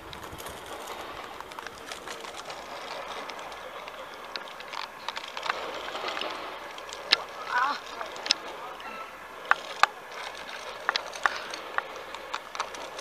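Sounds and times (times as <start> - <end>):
sharp clicks: 0.0 - 13.0
zipline pulley whirring on cable: 0.0 - 13.0.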